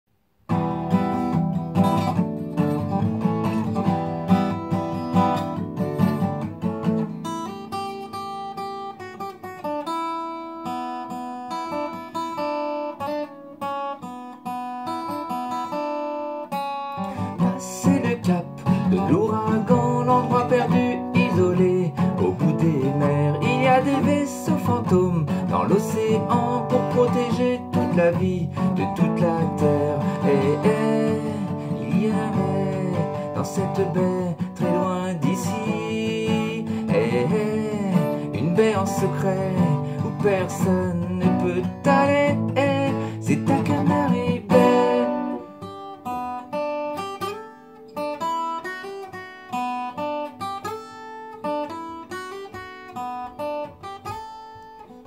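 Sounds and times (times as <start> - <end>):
twelve-string acoustic guitar strumming: 0.5 - 55.0.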